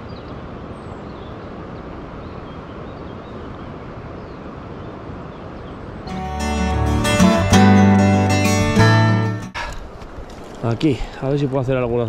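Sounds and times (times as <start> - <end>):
acoustic guitar music: 6.1 - 9.6.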